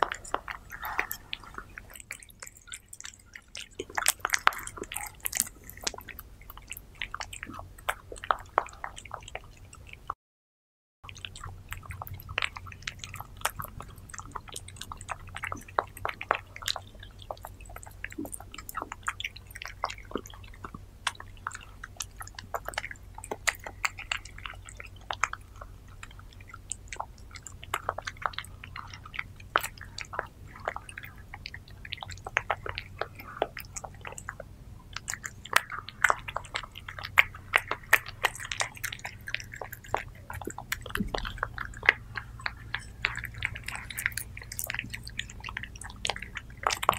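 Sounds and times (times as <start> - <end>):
cat chewing wet food: 0.0 - 10.2, 11.0 - 46.9.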